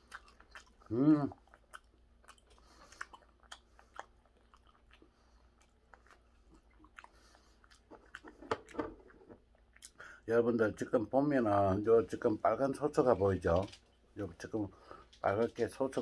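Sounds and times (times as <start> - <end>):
man chewing wet mouth clicks: 0.0 - 10.0.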